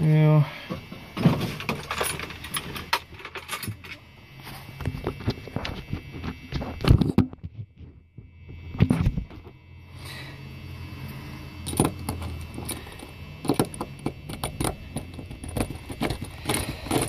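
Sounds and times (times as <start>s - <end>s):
small metal clicks and rattles: 11.6s - 17.0s.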